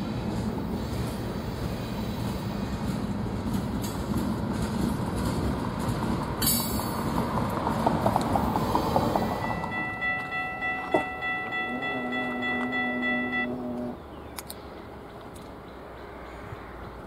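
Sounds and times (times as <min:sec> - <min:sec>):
locomotive air horn chord: 0:09.4 - 0:14.0.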